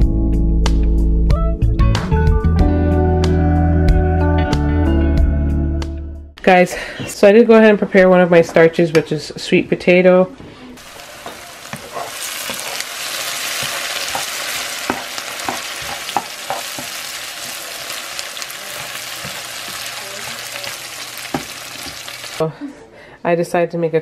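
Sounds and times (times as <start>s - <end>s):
onions sizzling in a frying pan: 10.8s - 22.4s
spatula scraping a pan: 11.1s - 20.7s.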